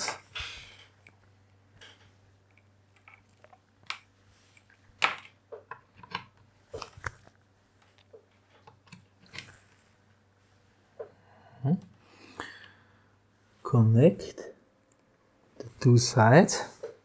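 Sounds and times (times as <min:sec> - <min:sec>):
cables and connectors handled: 0:01.0 - 0:09.8.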